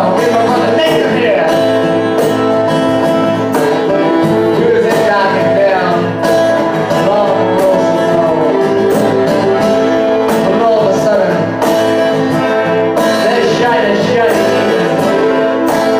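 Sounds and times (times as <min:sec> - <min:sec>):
accordion sustained notes: 0:00.0 - 0:15.9
acoustic and electric guitar: 0:00.0 - 0:15.9
cajon beat: 0:00.0 - 0:15.9.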